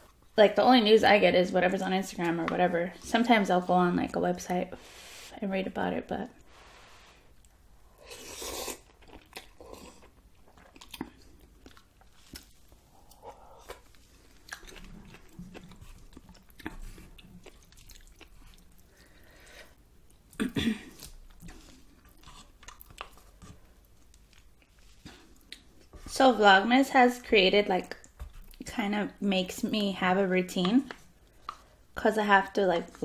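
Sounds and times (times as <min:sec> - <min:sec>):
person slurping noodles: 0:08.0 - 0:08.9
chewing with mouth clicks: 0:08.4 - 0:19.0, 0:21.0 - 0:26.0.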